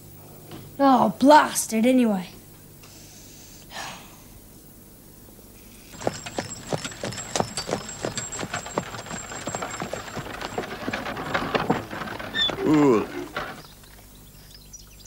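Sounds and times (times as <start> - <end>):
horse hooves clip-clopping: 6.0 - 14.4.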